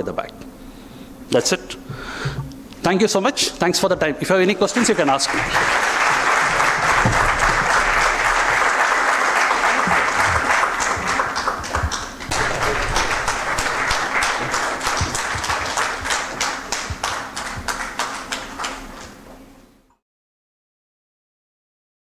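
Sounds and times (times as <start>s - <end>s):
audience applauding: 4.7s - 19.2s.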